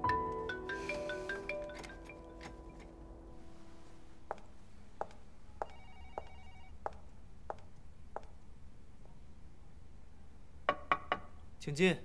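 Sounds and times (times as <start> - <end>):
high-heeled footsteps: 4.2 - 8.4.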